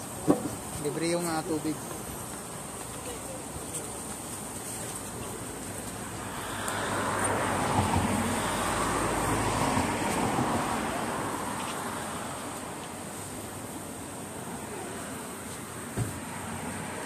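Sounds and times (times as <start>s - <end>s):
van driving past: 5.2s - 17.0s.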